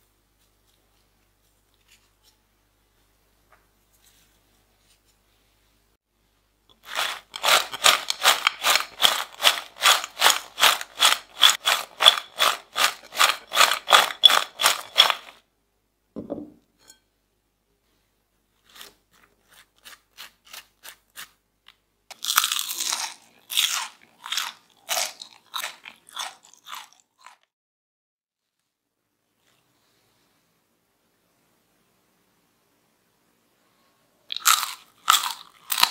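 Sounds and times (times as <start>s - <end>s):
fries rattling in a glass bowl: 6.8s - 15.4s.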